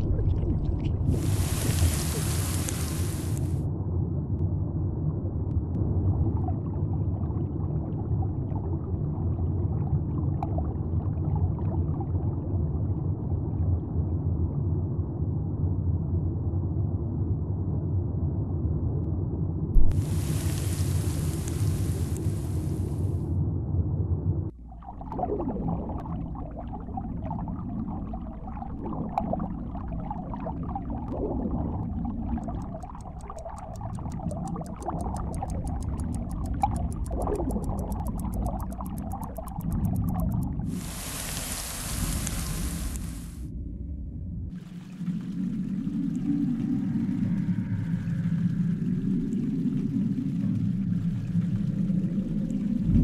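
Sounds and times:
bubbling and gurgling: 0.0 - 3.7, 5.8 - 14.9, 19.7 - 23.2, 24.5 - 43.5, 44.4 - 53.0
low underwater rumble: 0.0 - 53.0
small underwater clicks: 28.8 - 43.2.

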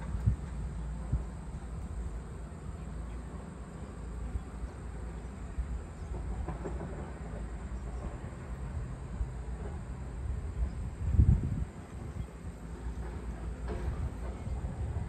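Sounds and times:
steady low rumble: 0.0 - 15.0
faint scattered sounds: 11.7 - 15.0.

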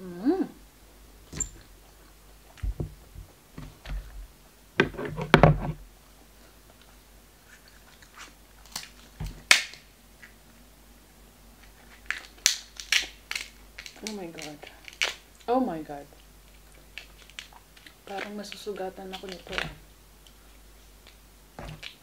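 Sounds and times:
crab shell clicking and crackling: 7.8 - 10.4, 11.6 - 20.4, 21.8 - 22.0
shears crunching crab leg: 11.7 - 15.4, 16.5 - 19.8.

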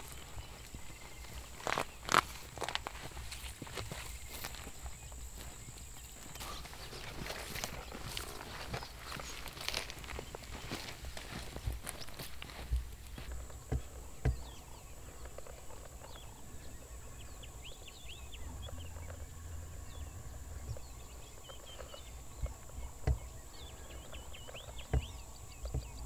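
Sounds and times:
small birds chirping: 0.0 - 26.0
sharp knocks: 22.4 - 23.4.

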